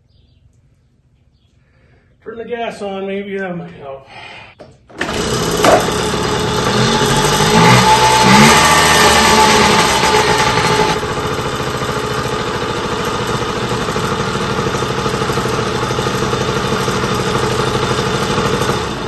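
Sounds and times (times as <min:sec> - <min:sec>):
small two-stroke engine idling: 0:05.0 - 0:19.0.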